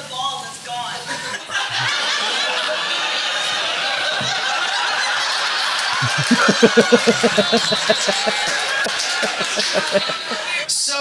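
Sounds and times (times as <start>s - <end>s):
audience laughing: 1.1s - 10.7s
man chuckling: 1.7s - 2.0s, 6.0s - 10.5s.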